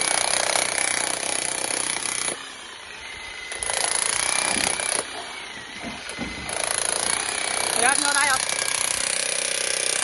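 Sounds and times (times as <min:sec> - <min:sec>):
demolition hammer chiselling concrete: 0:00.0 - 0:10.0.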